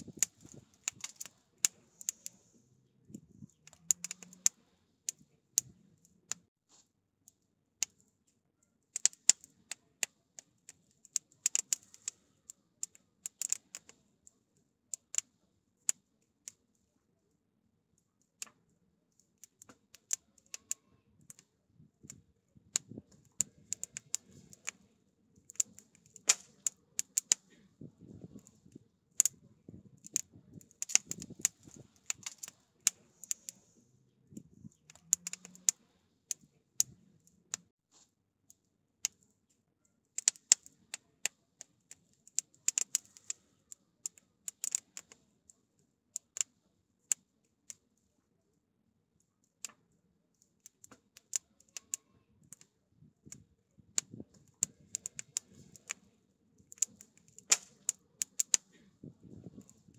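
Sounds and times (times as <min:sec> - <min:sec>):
firewood crackling and popping: 0:00.0 - 0:02.5, 0:03.2 - 0:05.7, 0:08.9 - 0:10.2, 0:10.8 - 0:14.0, 0:14.9 - 0:15.3, 0:19.4 - 0:37.7, 0:40.2 - 0:41.4, 0:42.0 - 0:43.4, 0:44.1 - 0:45.2, 0:50.8 - 0:56.0, 0:56.6 - 0:59.9.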